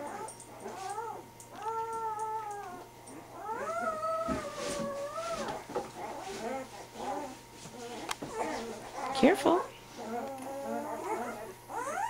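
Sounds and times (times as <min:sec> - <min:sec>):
puppy crying: 0:00.0 - 0:09.3, 0:09.9 - 0:12.0.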